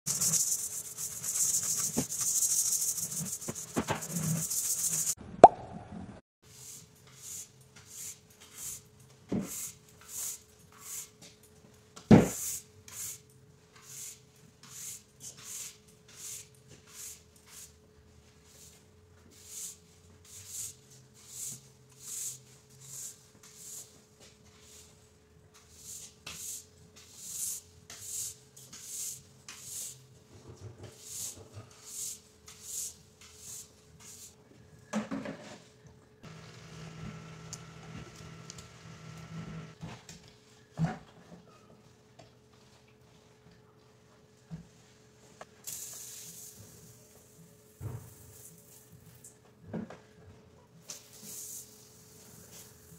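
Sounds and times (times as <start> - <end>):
brush scrubbing vinyl floor: 0.1 - 5.2.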